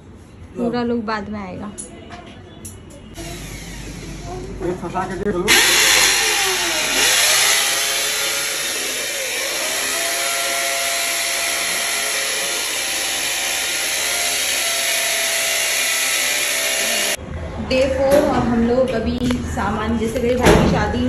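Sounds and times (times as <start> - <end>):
electric drill boring into wall: 3.2 - 4.1, 5.5 - 17.2.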